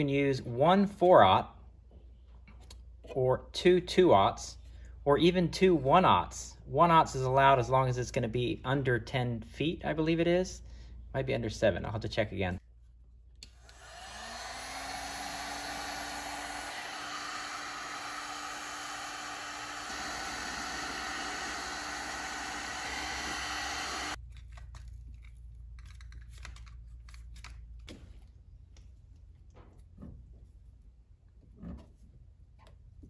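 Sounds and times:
heat gun fan whirring: 13.4 - 24.2
cables clicking and rustling: 24.2 - 29.2.

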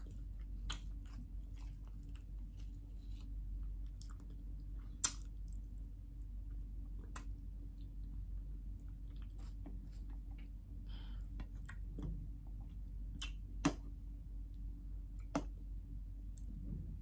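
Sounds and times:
chewing: 0.0 - 5.9, 6.9 - 10.5.

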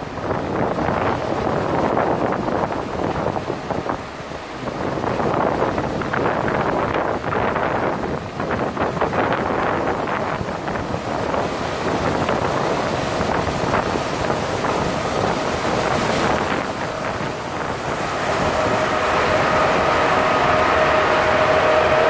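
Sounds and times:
wind rushing over microphone: 0.0 - 22.0
steady pitched hum: 15.4 - 22.0.

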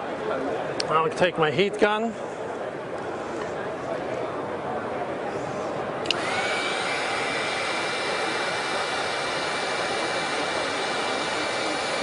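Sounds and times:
fan motor whine: 6.0 - 12.0
heat gun blowing air: 6.0 - 12.0.

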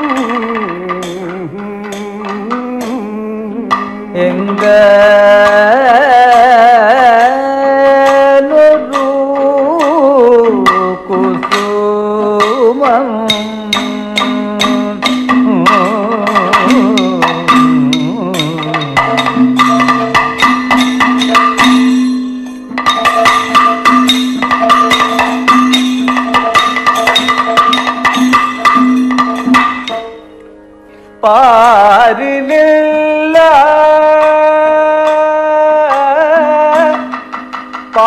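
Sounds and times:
man singing: 0.0 - 19.5, 31.2 - 37.2
fast drum percussion: 12.4 - 30.0.

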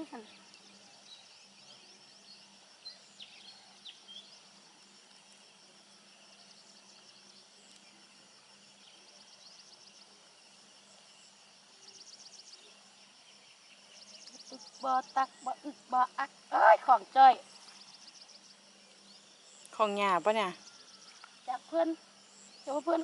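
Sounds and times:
bird chirps: 0.0 - 4.6, 10.8 - 23.0
high insect drone: 0.0 - 23.0.

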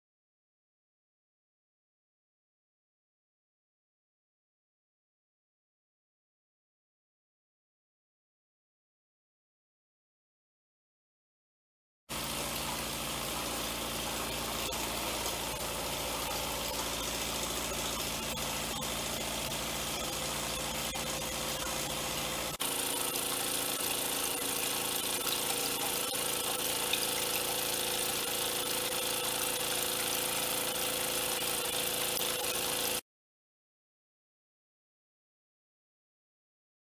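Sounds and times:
toy steam engine running: 12.1 - 33.0.

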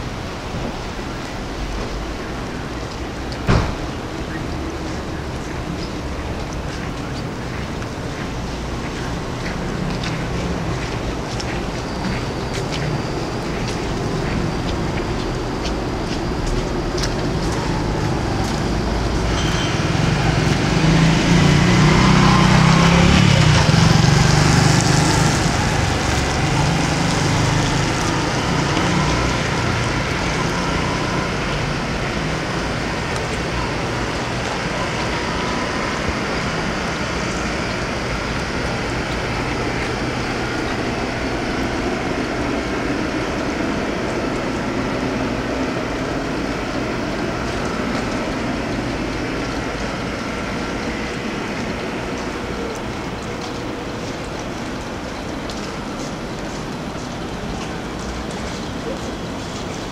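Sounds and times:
city street traffic: 0.0 - 59.9
vehicle passing close by: 19.0 - 33.0.

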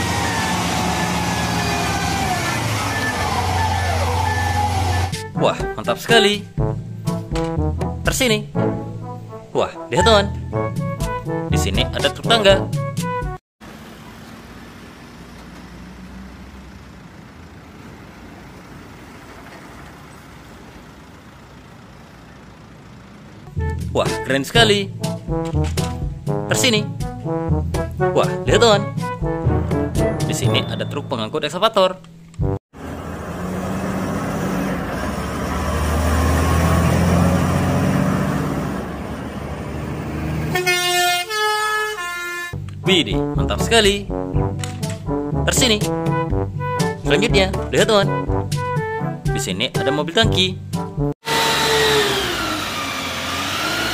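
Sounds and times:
truck engine running: 0.0 - 5.3, 13.6 - 24.3, 50.6 - 53.9.

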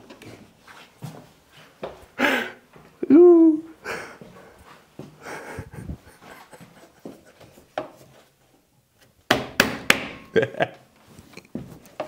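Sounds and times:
loud sharp knocks: 9.3 - 10.3.

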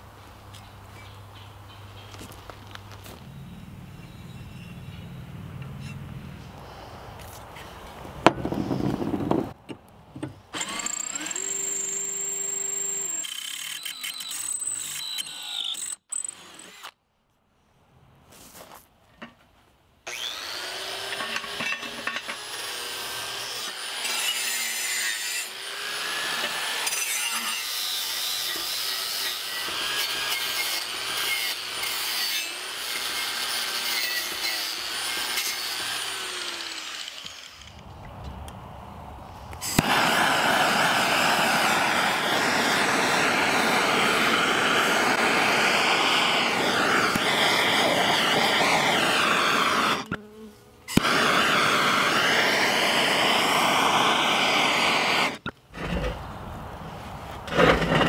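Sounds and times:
angle grinder whining: 10.6 - 16.9, 20.1 - 37.8, 39.6 - 50.3, 50.9 - 56.1
torch lighting pop: 39.6 - 42.3
torch flame hissing: 39.6 - 50.2, 50.9 - 56.3.

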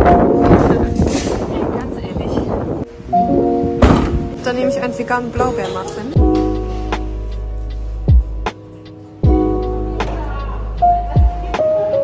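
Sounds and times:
deep drum hit: 3.8 - 4.4
music with held chords and beat: 6.2 - 12.0.

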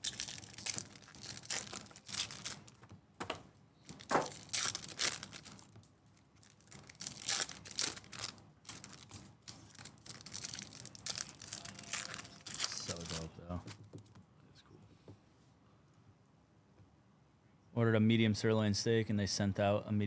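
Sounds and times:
foil wrappers tearing and crinkling: 0.0 - 2.8, 3.9 - 13.8.

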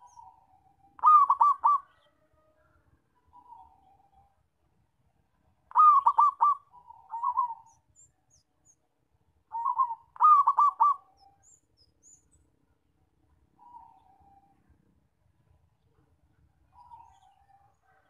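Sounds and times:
dove cooing song: 0.0 - 2.3, 3.3 - 4.3, 5.7 - 8.0, 9.5 - 11.5, 13.6 - 14.7, 16.7 - 18.0.

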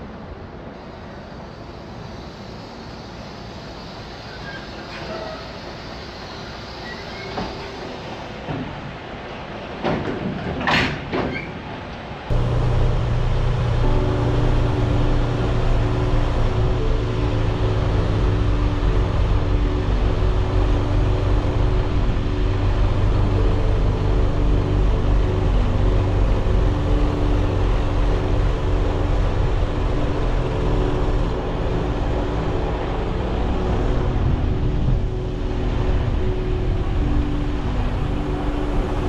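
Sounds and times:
low road rumble: 0.0 - 39.0
truck engine drone: 12.1 - 39.0.

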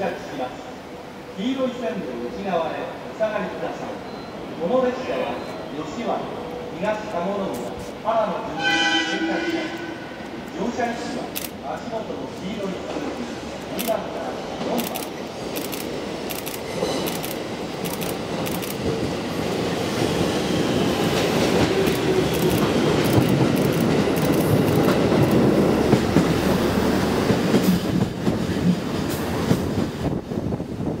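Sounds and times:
diesel railcar running: 3.8 - 31.0
train wheels clicking over rail joints: 10.4 - 19.2, 20.8 - 30.1.

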